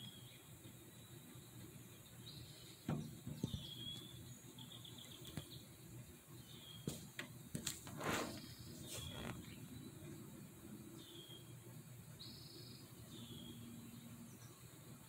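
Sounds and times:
rustling: 6.8 - 9.6.

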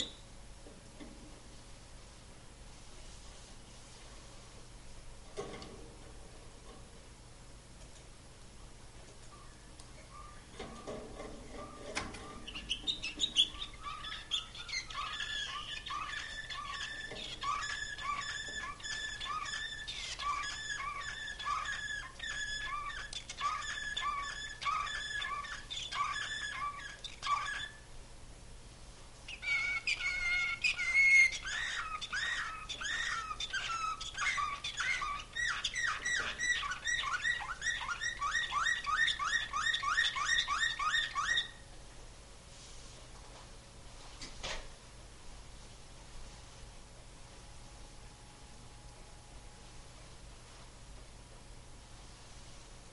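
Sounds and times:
canary singing: 0.0 - 0.3, 9.3 - 27.9, 29.2 - 41.7.

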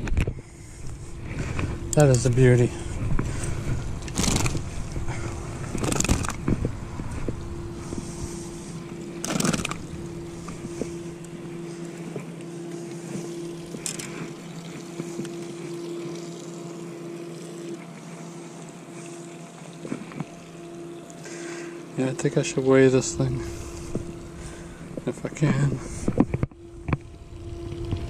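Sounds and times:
wind rumble on microphone: 0.0 - 9.0, 23.0 - 28.0
low motor-like hum: 0.0 - 28.0.

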